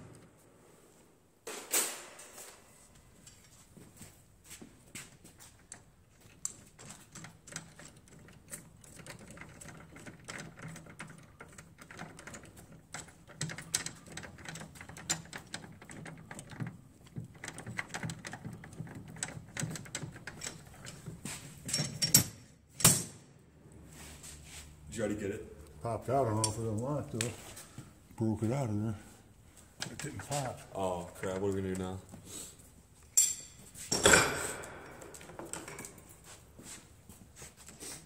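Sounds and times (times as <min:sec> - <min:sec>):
small metal clicks and scrapes: 0:05.6 - 0:21.1
sharp metal clanks: 0:33.2 - 0:35.2.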